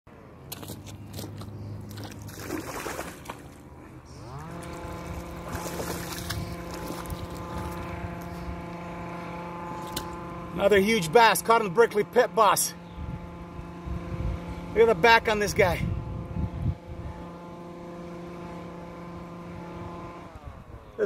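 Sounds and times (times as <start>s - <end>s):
splashes in shallow water: 0.5s - 7.9s
motor running: 0.6s - 21.0s.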